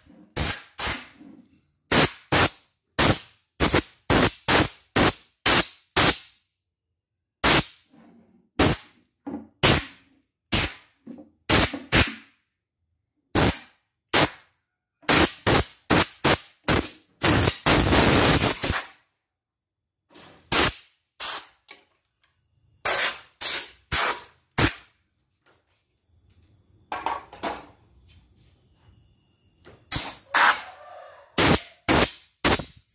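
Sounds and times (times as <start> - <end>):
compressed air blow gun blasts: 0.4 - 1.2, 1.9 - 6.3, 7.4 - 7.8, 8.6 - 8.9, 9.6 - 10.9, 11.5 - 12.2, 13.4 - 14.4, 15.1 - 18.9, 20.5 - 21.6, 22.8 - 24.9, 29.9 - 30.6, 31.4 - 32.8.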